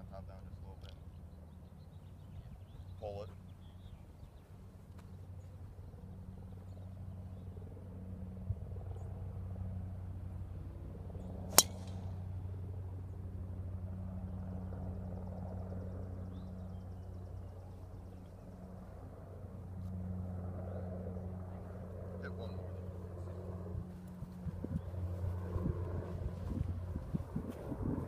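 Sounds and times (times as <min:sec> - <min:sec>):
steady low hum: 0:00.0 - 0:28.0
golf club striking ball: 0:11.5 - 0:12.2.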